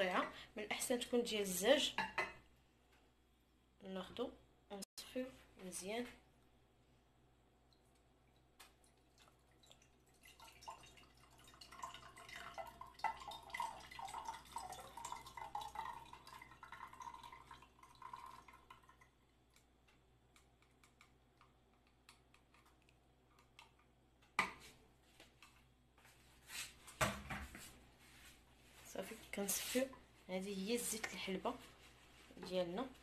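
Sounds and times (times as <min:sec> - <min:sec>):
oil trickling into a glass jar: 0:08.3 - 0:19.7.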